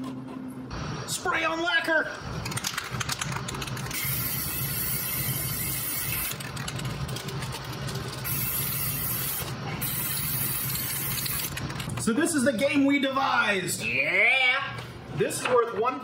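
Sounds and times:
spray can clicking and rattling: 0:02.4 - 0:11.9.

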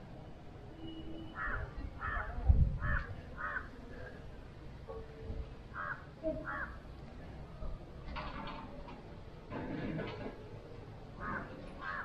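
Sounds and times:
crow cawing: 0:01.4 - 0:03.7, 0:05.8 - 0:06.8, 0:11.2 - 0:12.0.

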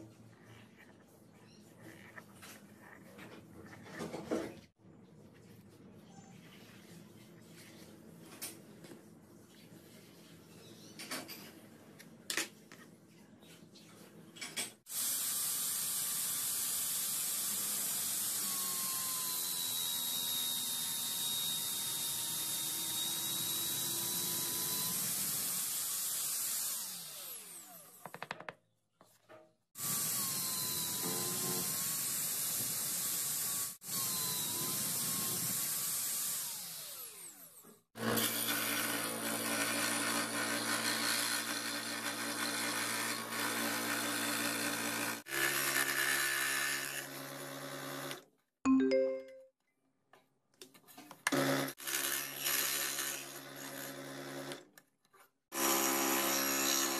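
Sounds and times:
power drill boring wood: 0:14.9 - 0:28.0, 0:29.8 - 0:48.2, 0:51.3 - 0:54.7, 0:55.5 - 0:56.9
scroll saw cutting: 0:29.8 - 0:48.2, 0:51.3 - 0:54.6, 0:55.5 - 0:56.9.

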